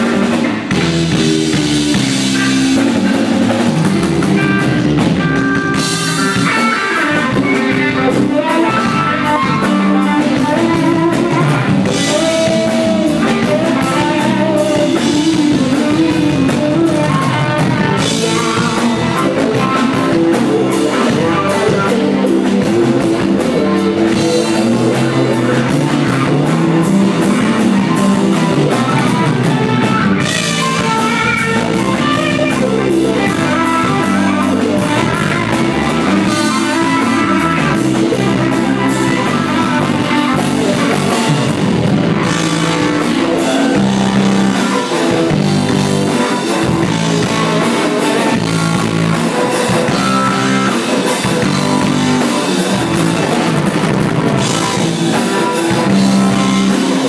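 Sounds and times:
drum kit: 0.0s - 57.0s
electric bass: 0.0s - 57.0s
electric guitars: 0.0s - 57.0s.

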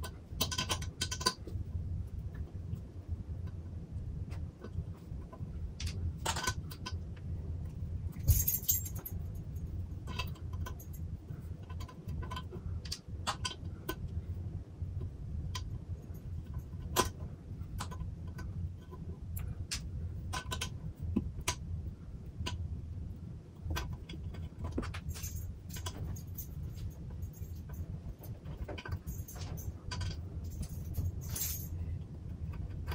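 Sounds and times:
steady low hum: 0.0s - 32.9s
metal rattle: 8.1s - 9.2s, 24.2s - 31.8s.

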